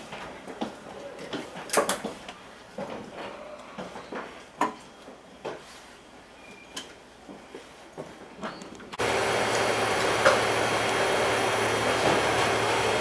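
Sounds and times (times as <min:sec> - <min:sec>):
train wheels clanking over rail joints: 0:09.2 - 0:13.0.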